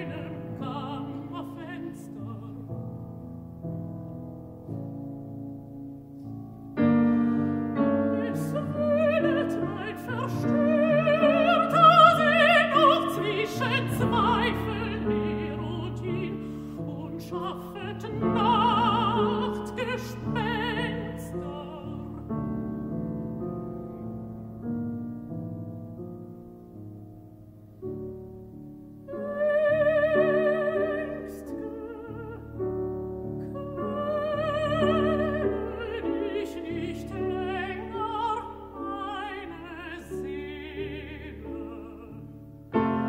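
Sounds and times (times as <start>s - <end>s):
woman singing with vibrato: 0.0s - 2.8s, 6.9s - 22.6s, 29.1s - 43.0s
piano: 0.0s - 43.0s.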